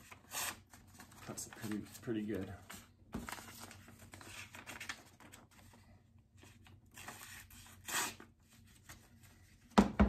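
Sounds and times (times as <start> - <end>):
paper cutting and rustling: 2.7 - 5.7, 6.4 - 9.0.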